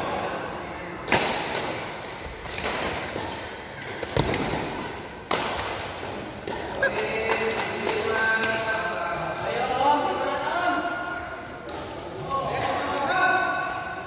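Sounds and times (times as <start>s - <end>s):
shoes squeaking on court: 2.8s - 5.2s.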